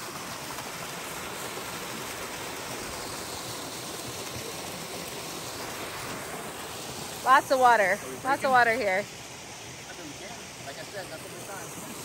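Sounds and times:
creek water rushing: 0.0s - 12.0s.

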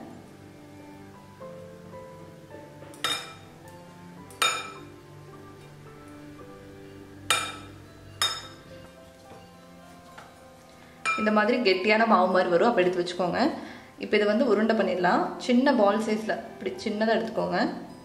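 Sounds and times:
soft background music: 0.0s - 18.0s.

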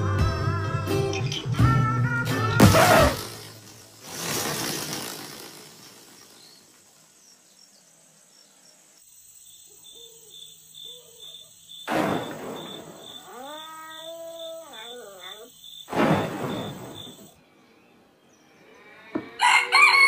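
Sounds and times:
crickets chirping: 2.7s - 17.4s.

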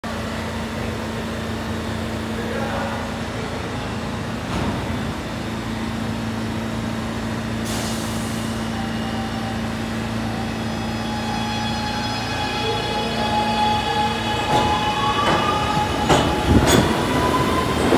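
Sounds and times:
air brakes hissing: 7.6s - 8.7s.

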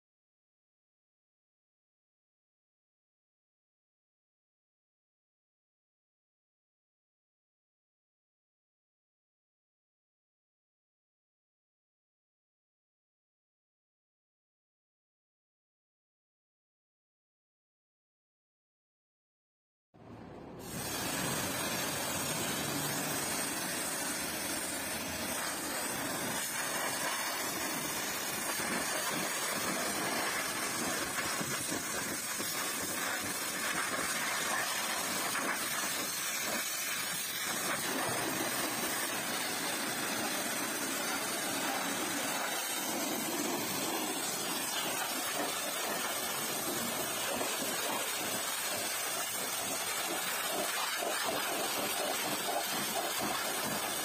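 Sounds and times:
pressure washer spraying water: 20.6s - 54.0s.

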